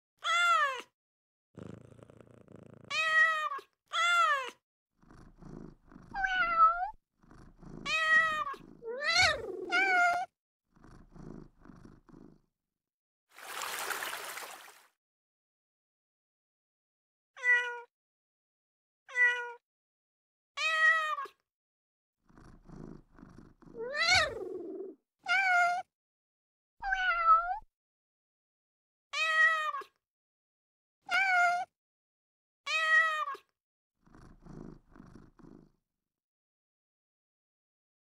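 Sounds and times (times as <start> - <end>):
cat meows: 0.2 - 0.9, 2.9 - 4.6, 6.2 - 7.0, 7.9 - 10.3, 17.4 - 17.9, 19.1 - 19.6, 23.8 - 25.9, 26.8 - 27.7, 29.2 - 30.0, 31.1 - 31.7, 32.7 - 33.5
cat purring: 1.6 - 3.0, 5.0 - 12.5, 22.3 - 25.0, 34.0 - 35.8.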